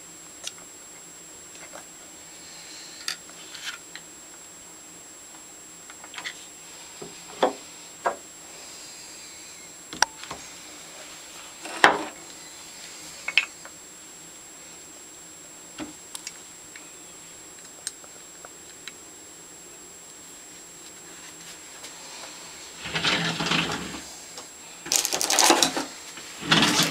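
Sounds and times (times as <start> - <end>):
small metal parts clicking: 24.9 - 25.8.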